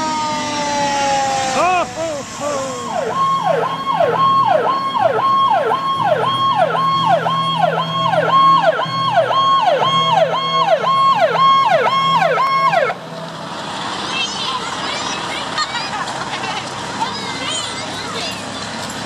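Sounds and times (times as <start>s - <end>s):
fire engine siren yelping: 0.0s - 13.1s.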